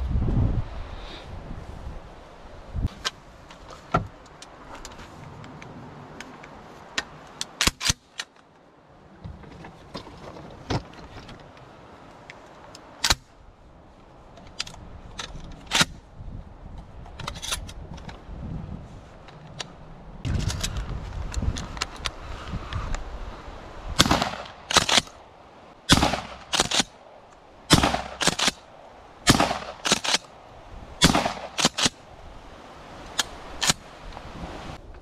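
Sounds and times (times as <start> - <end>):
sharp metallic gun clicks: 7.0 - 8.4, 24.0 - 25.2, 25.9 - 28.7, 29.3 - 30.3, 31.0 - 32.0, 33.1 - 33.8.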